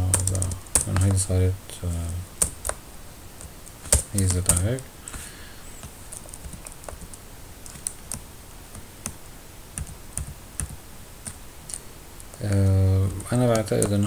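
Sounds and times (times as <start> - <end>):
keyboard keystrokes: 0.0 - 1.2, 3.8 - 5.2.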